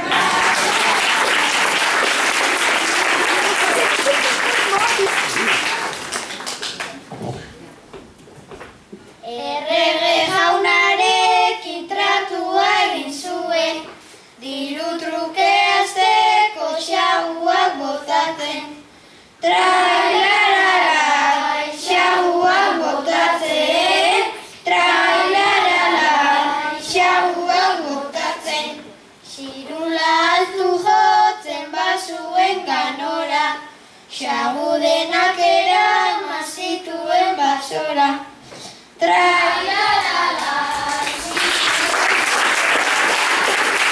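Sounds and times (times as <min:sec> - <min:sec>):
girl singing unaccompanied: 0:09.2 - 0:41.6.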